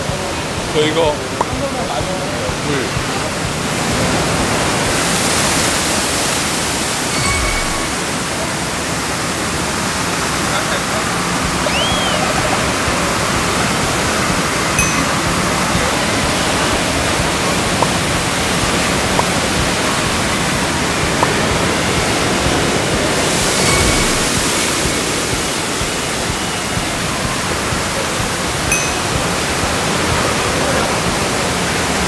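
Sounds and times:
water running and splashing: 10.5 - 32.0
water crashing down: 10.9 - 32.0.

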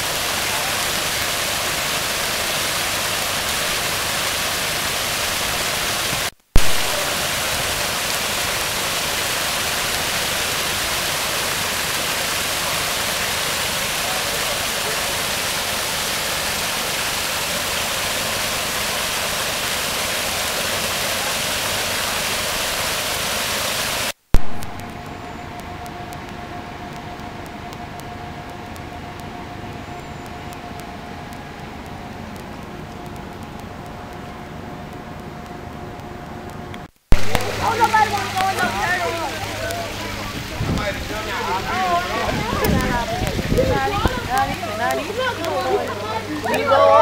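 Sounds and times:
waterfall splashing into a pond: 0.0 - 25.0, 37.1 - 47.0
sharp pop: 6.5 - 7.1, 24.3 - 25.0, 37.1 - 37.6.

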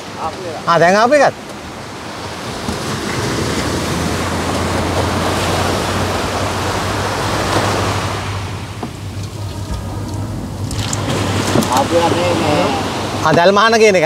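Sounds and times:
sea surf rushing: 0.0 - 14.0
low steady hum: 5.8 - 13.2.

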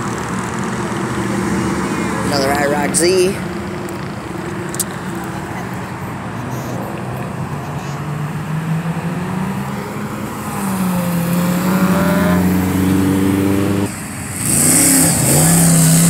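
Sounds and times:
cars driving past: 0.0 - 16.0
car engine revving: 7.3 - 16.0.

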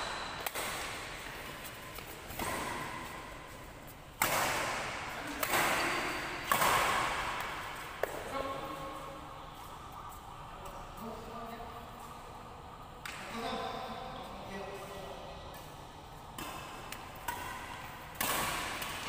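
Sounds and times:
racket hitting shuttlecock: 0.0 - 3.6, 4.2 - 8.3, 16.4 - 19.0.

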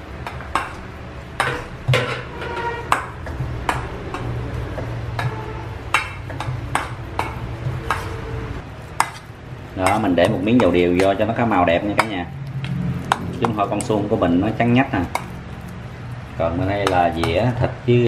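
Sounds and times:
spoon scraping metal bowl: 1.4 - 6.6, 7.2 - 12.3.

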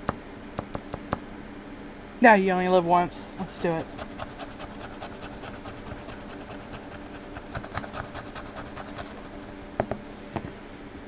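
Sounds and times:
scratcher scraping scratch-off sticker: 3.4 - 9.6.

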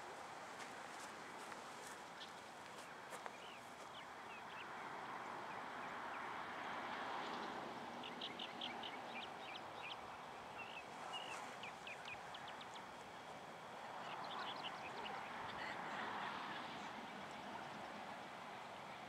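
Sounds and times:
small birds chirping: 7.2 - 15.7.

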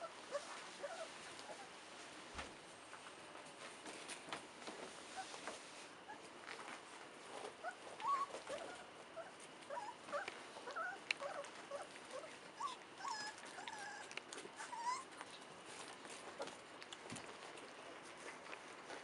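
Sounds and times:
puppies play growling: 0.0 - 1.9, 4.6 - 19.0
puppies squeaking and yipping: 7.7 - 15.2.

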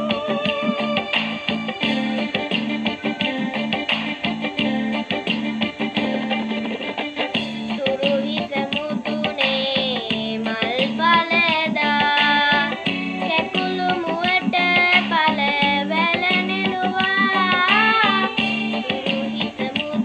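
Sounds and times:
boy singing: 0.0 - 1.2, 7.7 - 20.0
instrumental backing music: 0.0 - 20.0.

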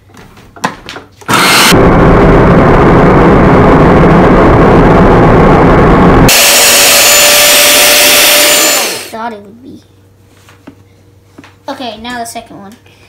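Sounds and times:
food processor running: 1.3 - 2.0, 6.3 - 9.2
shredding disc grating cucumber: 6.3 - 9.2.

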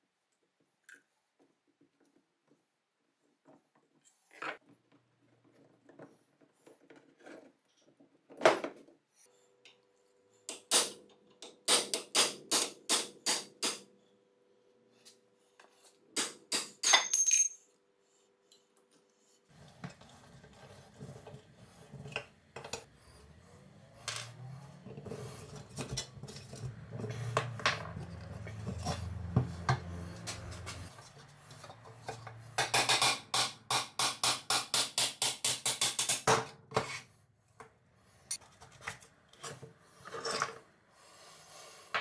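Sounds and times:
metal scraping and knocks on wood: 24.0 - 33.3.

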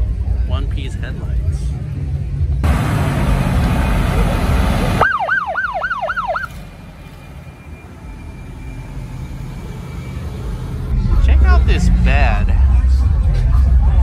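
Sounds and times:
truck engine rumble: 0.0 - 14.0
siren wailing: 4.9 - 11.0.

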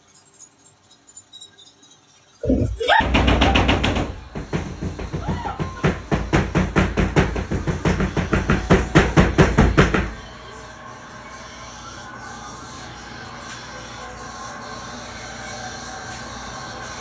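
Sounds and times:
loud rapid thumps: 2.5 - 10.2.

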